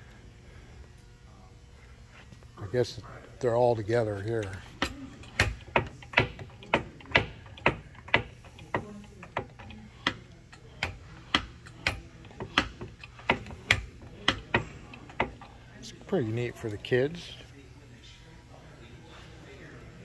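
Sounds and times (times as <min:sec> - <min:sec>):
lever mechanism clacking: 0:04.4 - 0:15.5.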